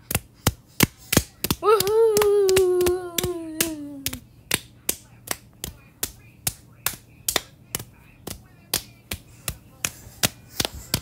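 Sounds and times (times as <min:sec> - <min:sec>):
person cheering: 0:01.6 - 0:04.2.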